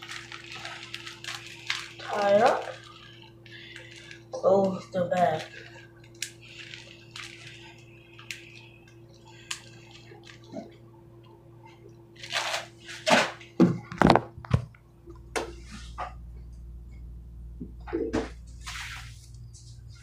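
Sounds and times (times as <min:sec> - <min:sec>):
plastic bag crinkling: 0:00.0 - 0:10.6, 0:12.2 - 0:13.1
sharp plastic crackles: 0:00.0 - 0:10.6, 0:12.2 - 0:14.6.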